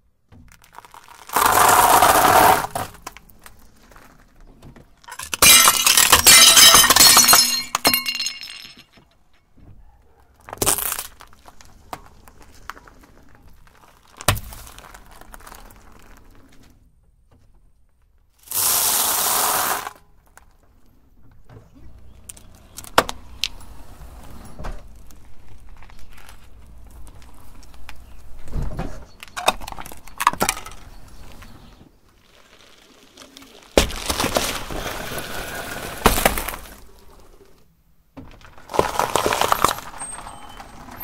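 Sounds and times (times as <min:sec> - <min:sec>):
tyre crushing plastic objects: 0:00.1 - 0:09.1, 0:10.4 - 0:16.5, 0:29.1 - 0:41.0
loud steady hiss: 0:18.5 - 0:19.9.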